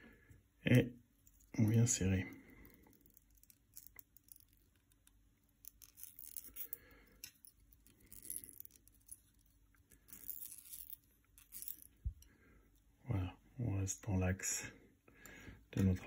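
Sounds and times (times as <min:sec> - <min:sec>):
thread rasping around fly hook: 0:02.5 - 0:12.9.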